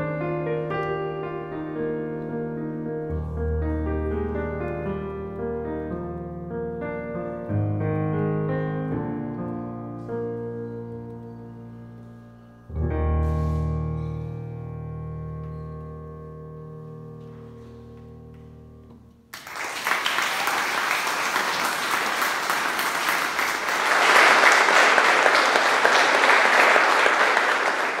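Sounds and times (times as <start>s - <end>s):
piano chord ringing: 0.0s - 19.3s
audience applause: 19.3s - 28.0s.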